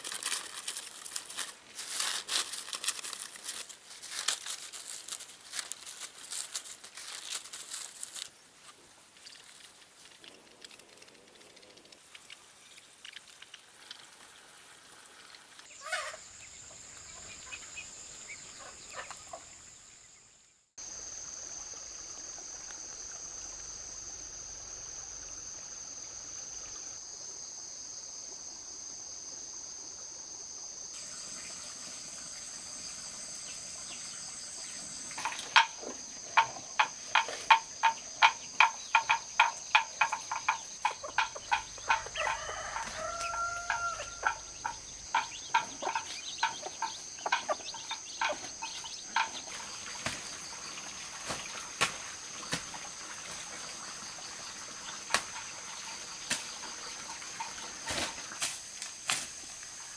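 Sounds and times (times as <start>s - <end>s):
insects droning: 0.0s - 59.9s
hen calling: 15.8s - 16.2s.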